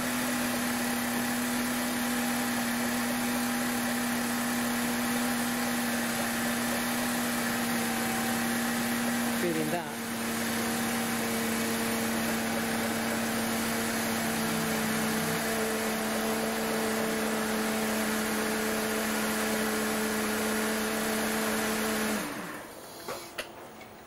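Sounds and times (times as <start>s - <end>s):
car engine idling with whine: 0.0s - 22.8s.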